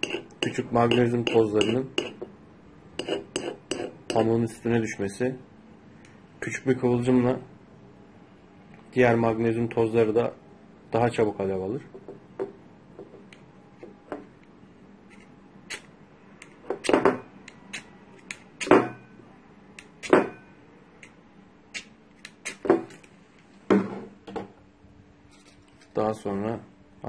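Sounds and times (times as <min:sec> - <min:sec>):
knife scraping fire-starter rod: 0:00.0 - 0:00.6, 0:03.0 - 0:04.0.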